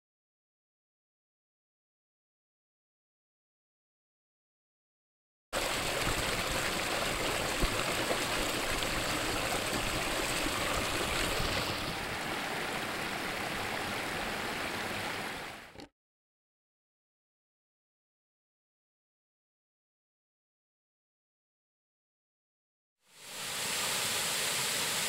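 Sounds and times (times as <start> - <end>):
creek rushing over rocks: 5.6 - 15.6.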